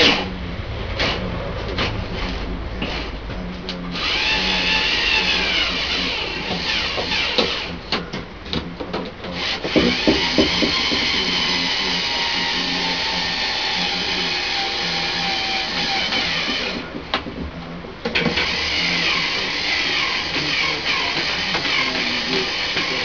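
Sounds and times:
cordless drill motor whine: 3.9 - 7.8, 9.4 - 16.9, 18.3 - 23.0.

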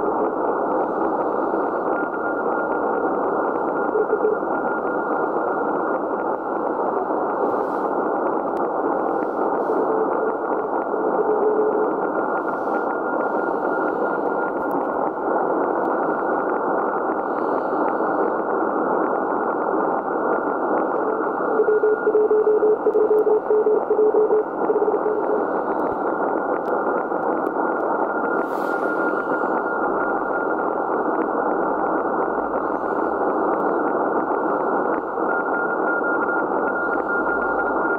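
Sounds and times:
faint static crackles: 0.0 - 37.9
radio band noise hiss: 0.0 - 37.9
faint high steady tone: 3.7 - 5.7, 21.1 - 26.0
morse code tone: 3.8 - 4.7, 9.8 - 12.0, 21.5 - 25.6.

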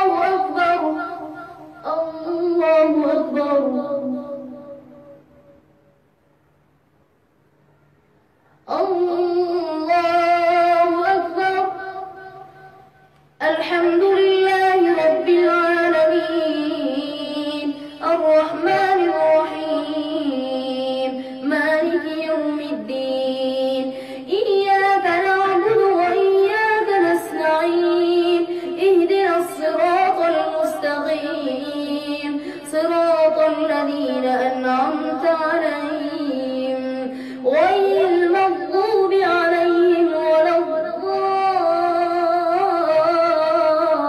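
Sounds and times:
boy chanting: 0.0 - 5.6, 8.6 - 44.0.

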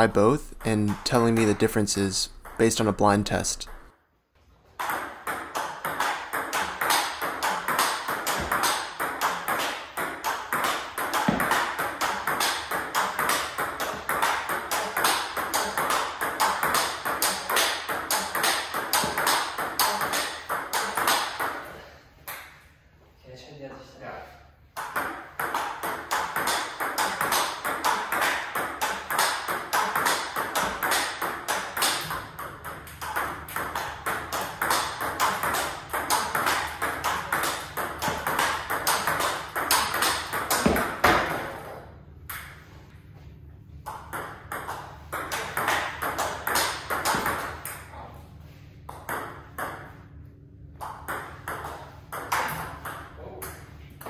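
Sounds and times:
ping pong ball hitting paddles: 0.0 - 3.9, 4.7 - 22.6, 24.7 - 42.8, 43.8 - 48.0, 48.8 - 53.8
ping pong ball bouncing on table: 2.3 - 2.7, 4.8 - 21.7, 24.8 - 41.5, 43.8 - 47.9, 48.9 - 50.0, 50.7 - 53.7.

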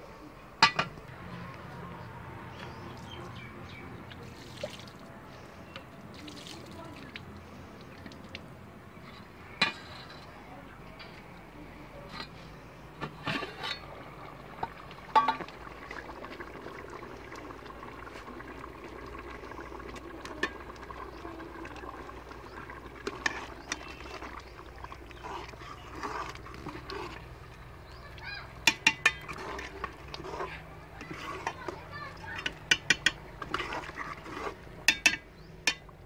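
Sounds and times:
potatoes bubbling in water: 0.4 - 11.5, 12.2 - 36.0
metal ladle scraping pot: 0.6 - 1.0, 9.0 - 10.4, 12.1 - 16.4, 17.3 - 35.9
pot lid clanking: 15.1 - 15.5, 28.6 - 29.4, 34.9 - 35.8.

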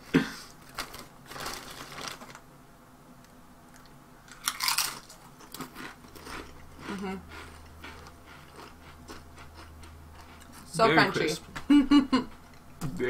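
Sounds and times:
chips crackling in hand: 0.6 - 2.4, 3.7 - 9.7
potato chips crunching: 0.6 - 2.4, 3.7 - 10.3.

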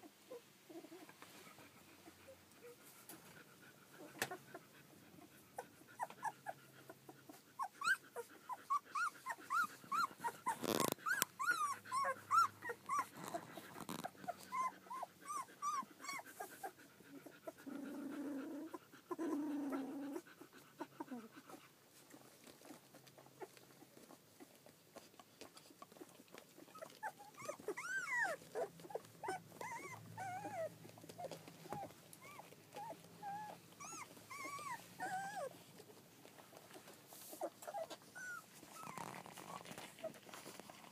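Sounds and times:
puppy growling: 0.3 - 40.9
puppies squeaking and whimpering: 5.6 - 17.3, 25.7 - 35.6, 37.3 - 40.8.

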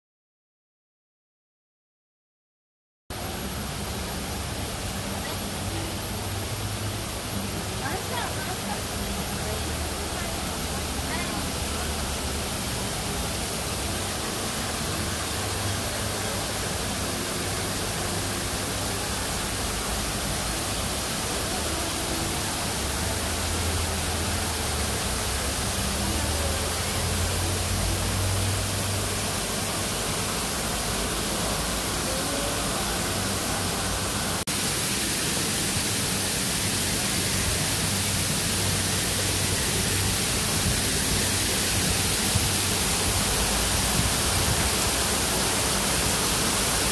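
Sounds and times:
waterfall rushing: 3.1 - 46.9.

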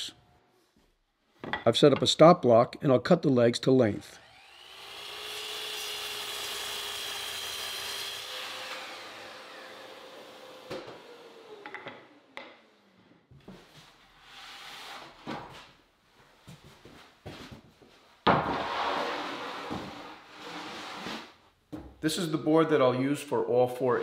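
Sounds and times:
miter saw cutting wood: 4.2 - 12.4.

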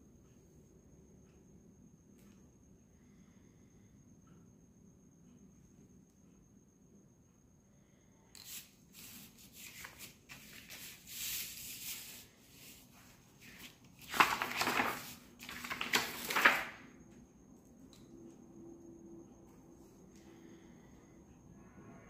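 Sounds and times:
sheet rustling: 9.0 - 16.8.

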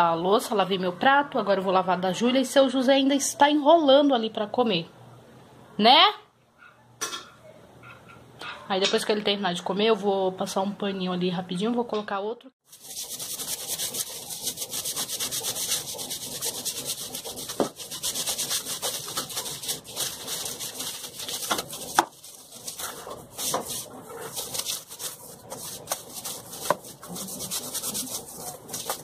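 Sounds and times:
broom scrubbing wet tile floor: 12.6 - 29.0.

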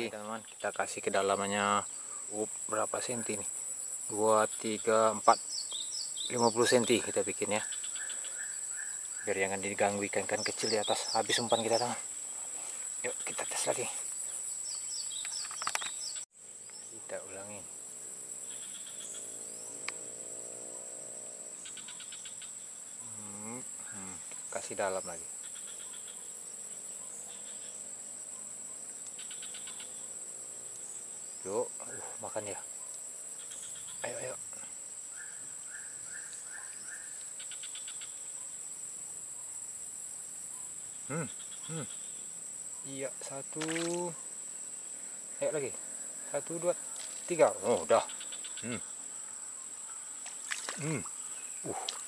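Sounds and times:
crickets chirping: 0.0 - 52.0
insects droning: 0.0 - 52.0
person making vocal sound: 23.1 - 24.2, 41.1 - 41.9, 48.6 - 48.9, 50.8 - 52.0.

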